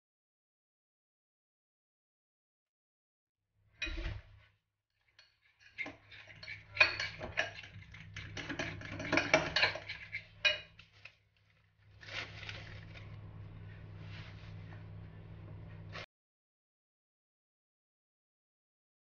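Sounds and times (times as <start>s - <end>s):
fork scraping a glass bowl: 5.2s - 11.1s
steady low hum: 11.8s - 16.1s.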